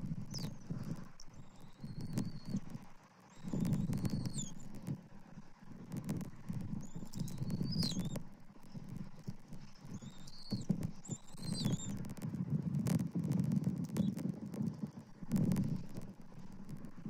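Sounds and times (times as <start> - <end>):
clicks and crackles in nest: 0.0 - 17.0
wind rumble on microphone: 0.0 - 17.0
high bird chirps: 3.3 - 4.6, 6.8 - 8.2, 9.8 - 12.0.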